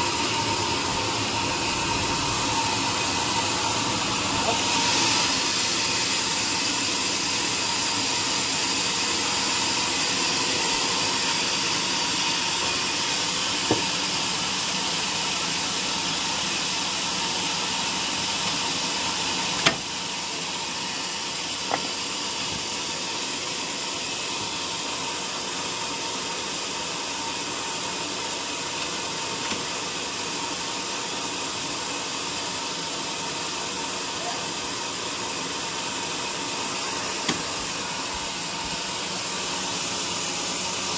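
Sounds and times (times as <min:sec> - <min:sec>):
sawmill machinery running: 0:00.0 - 0:40.9
sharp knocks: 0:13.7 - 0:13.9.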